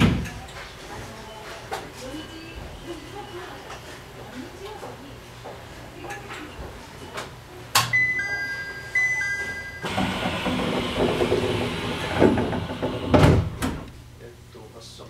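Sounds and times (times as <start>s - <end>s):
two-note electronic chime: 8.0s - 9.9s.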